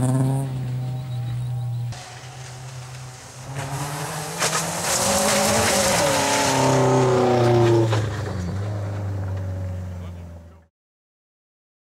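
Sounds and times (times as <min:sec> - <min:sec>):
rally car engine revving: 0:00.0 - 0:10.6
gravel and tyre hiss: 0:02.0 - 0:09.8.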